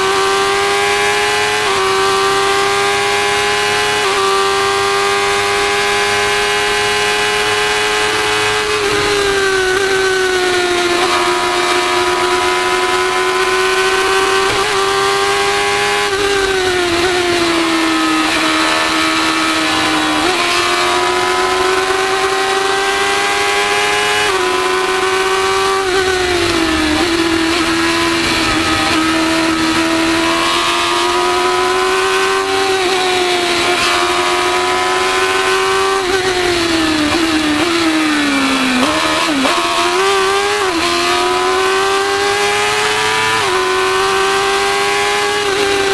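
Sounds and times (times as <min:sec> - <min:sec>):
race car engine running hard: 0:00.0 - 0:45.9.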